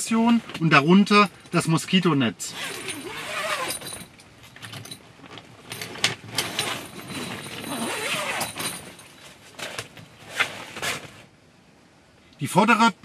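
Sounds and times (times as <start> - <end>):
tent fabric rustling and flapping: 2.6 - 4.0, 5.2 - 11.3.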